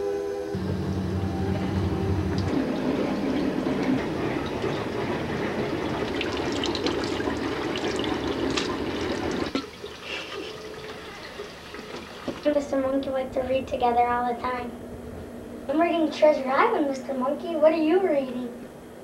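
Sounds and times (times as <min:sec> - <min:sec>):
water splashes and knocks: 0:02.6 - 0:10.0, 0:11.2 - 0:12.6
tap running into sink: 0:06.0 - 0:09.8.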